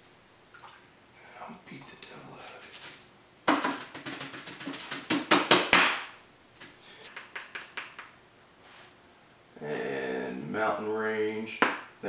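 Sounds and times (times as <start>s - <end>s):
paintbrush knocking on hard surface: 3.5s - 5.9s.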